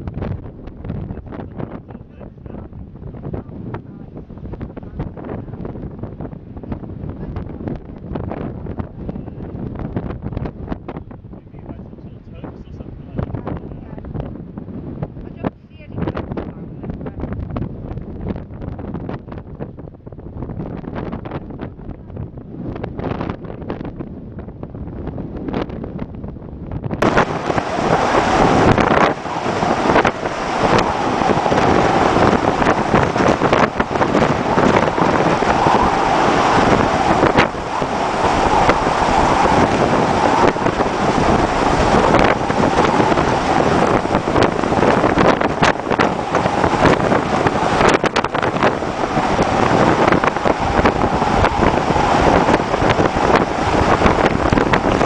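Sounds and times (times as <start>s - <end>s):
wind buffeting microphone: 0.0s - 55.0s
rough seas breaking against bow: 27.0s - 55.0s.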